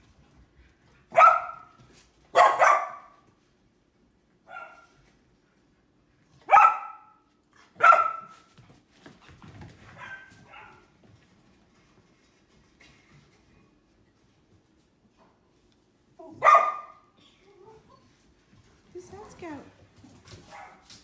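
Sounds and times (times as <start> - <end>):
puppies barking high-pitched: 2.4 - 3.1, 16.3 - 17.0.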